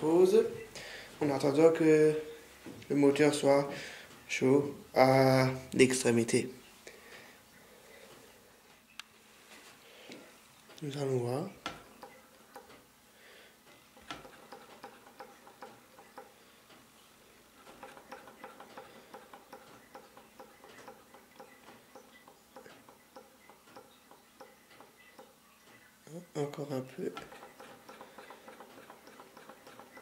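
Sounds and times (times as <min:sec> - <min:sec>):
small engine ticking: 0:17.6 - 0:25.3, 0:27.2 - 0:30.0.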